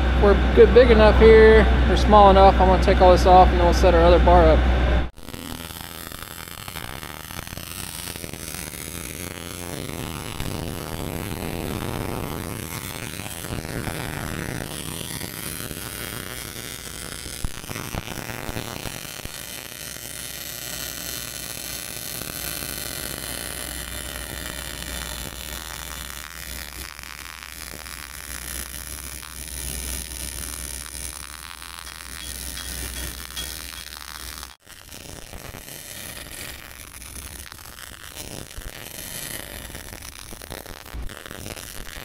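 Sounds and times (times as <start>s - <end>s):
low electrical hum: 0.0s - 15.0s
welding arc crackling and hissing: 5.1s - 42.0s.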